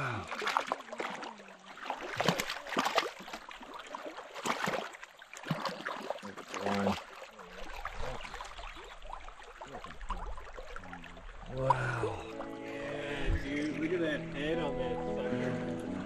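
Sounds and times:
hands splashing in water: 0.0s - 12.2s
creek water running over stones: 0.0s - 16.0s.

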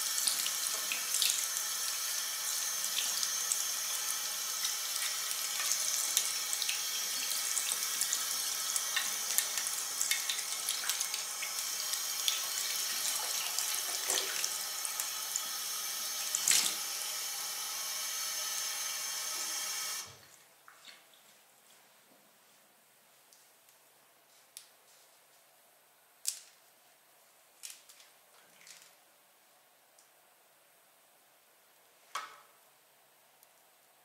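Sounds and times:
faint water drips: 20.6s - 21.4s.

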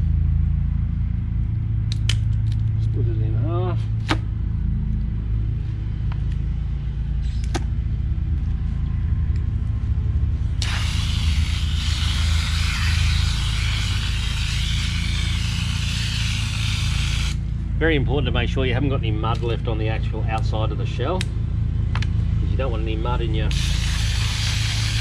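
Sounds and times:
steady low rumble: 0.0s - 25.0s
hose nozzle spraying water: 10.6s - 17.4s, 23.5s - 25.0s.

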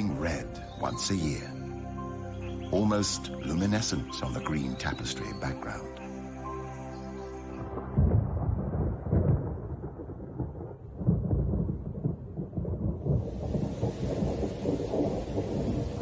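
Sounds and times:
thunder rumbling: 7.6s - 16.0s
heavy rain hissing: 13.1s - 16.0s.

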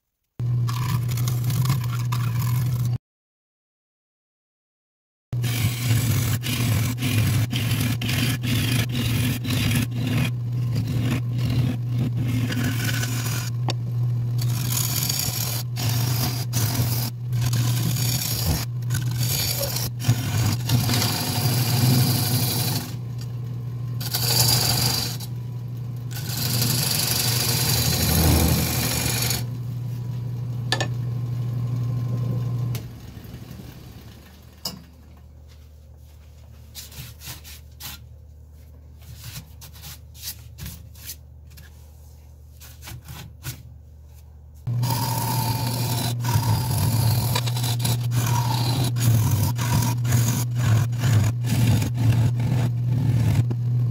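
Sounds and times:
turning tool scraping wood: 0.7s - 3.0s, 5.4s - 13.8s, 14.4s - 23.0s, 24.0s - 25.3s, 26.1s - 29.5s, 44.6s - 53.9s
wood lathe motor hum: 5.4s - 13.8s, 14.4s - 23.0s, 24.0s - 25.4s, 26.0s - 29.6s, 44.7s - 53.9s.

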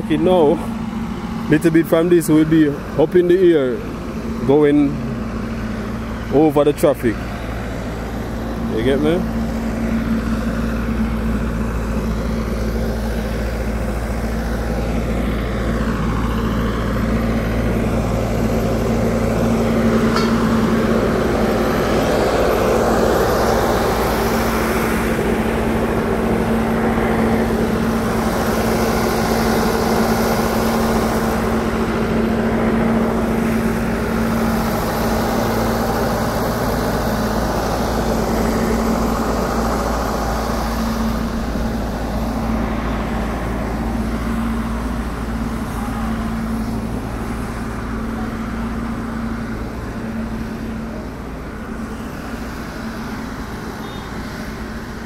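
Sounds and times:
engine hum drone: 0.0s - 55.0s
vehicles passing: 0.0s - 55.0s.

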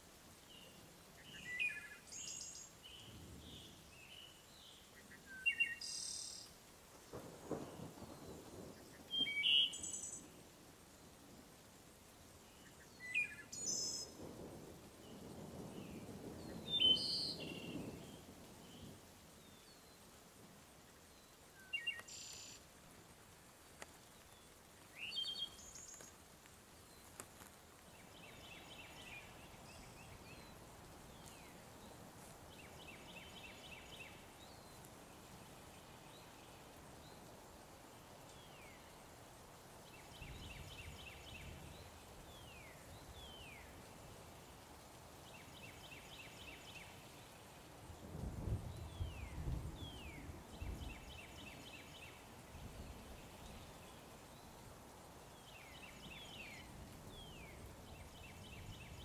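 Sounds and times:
songbirds singing and calling: 0.4s - 10.4s, 15.0s - 20.1s, 21.0s - 22.6s, 23.8s - 26.2s.

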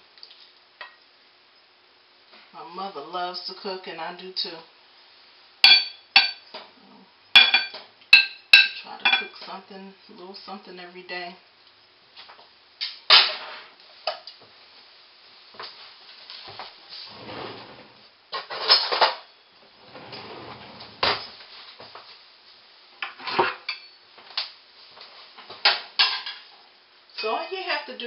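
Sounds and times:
metal utensils clattering on pots: 7.4s - 9.4s, 26.0s - 26.5s.

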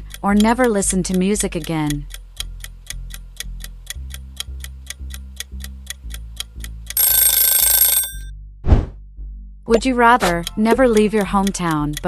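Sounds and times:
rapid clock ticks: 0.0s - 8.3s, 9.7s - 12.0s
pulsing bass line: 8.1s - 12.0s.

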